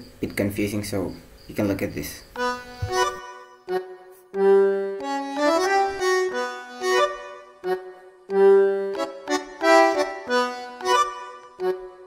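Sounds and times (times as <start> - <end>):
music with held notes: 2.4 - 12.0.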